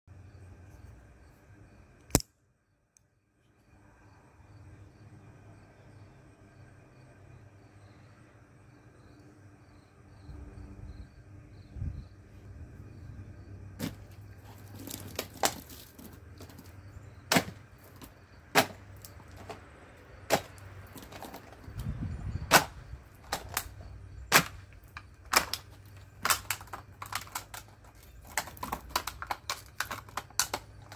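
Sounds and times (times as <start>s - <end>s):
knife stabbing plastic bottle: 17.3s - 19.2s, 22.5s - 23.7s.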